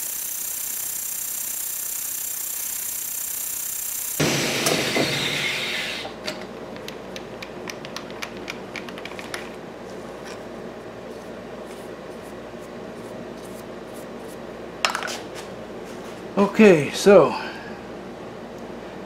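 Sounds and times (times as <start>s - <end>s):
end mill cutting metal: 4.2s - 6.2s
milling machine hum: 4.2s - 6.2s.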